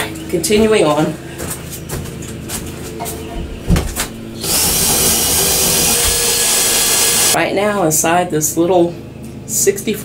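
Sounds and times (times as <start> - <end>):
cordless drill boring into wood: 4.4 - 7.4.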